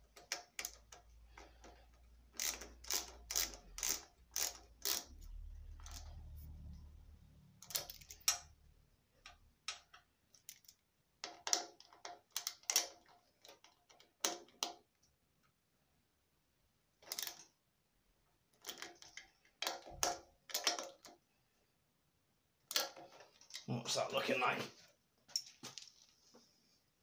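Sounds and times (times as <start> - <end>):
socket ratchet clicking: 2.3 - 6.1
low rumble: 5.3 - 7.6.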